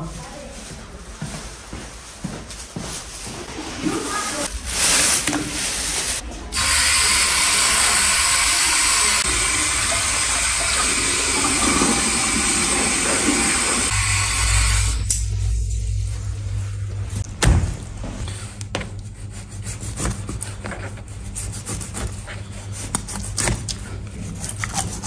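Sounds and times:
tap water running into basin: 6.6s - 15.0s.

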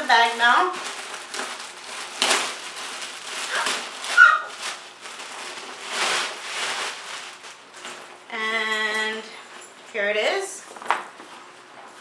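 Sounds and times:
plastic wrapping crinkling: 0.0s - 9.7s.

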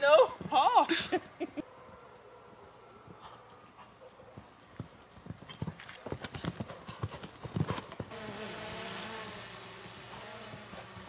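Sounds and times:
pony hoofbeats: 3.0s - 8.2s.

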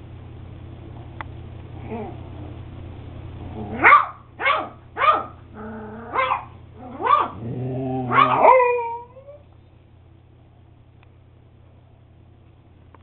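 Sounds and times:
dog bark with low growl: 3.6s - 5.4s, 6.1s - 8.8s
puppy yapping barks: 3.7s - 5.5s, 6.1s - 7.4s, 8.1s - 8.9s.

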